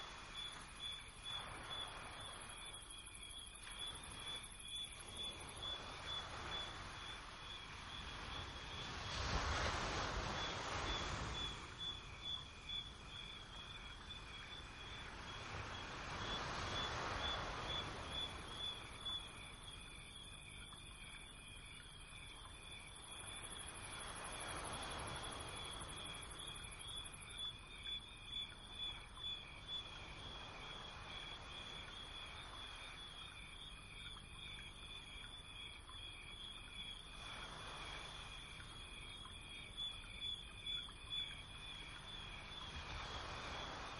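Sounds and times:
insect trill: 0:00.0 - 0:43.9
low hiss: 0:29.8 - 0:43.9.

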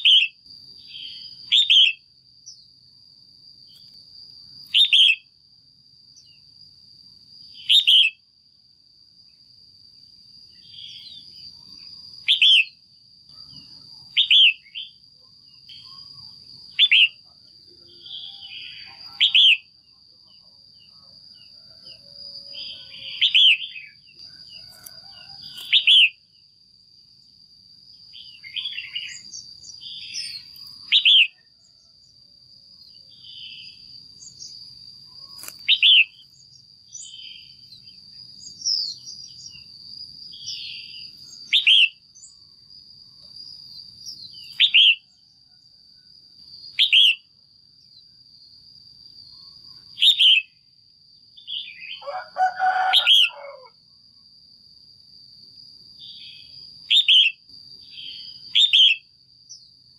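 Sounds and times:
bird calling: 0:04.7 - 0:05.2, 0:07.6 - 0:08.2, 0:15.7 - 0:17.2, 0:17.9 - 0:19.7, 0:24.7 - 0:26.2, 0:33.2 - 0:36.2
soft bird chirps: 0:10.5 - 0:19.7, 0:20.3 - 0:26.2, 0:28.1 - 0:31.9, 0:32.8 - 0:39.7.

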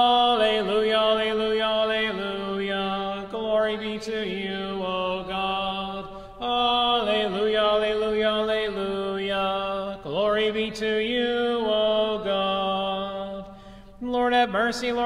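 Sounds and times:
person chanting: 0:00.0 - 0:15.0
breaths: 0:06.0 - 0:06.4, 0:13.4 - 0:14.0.

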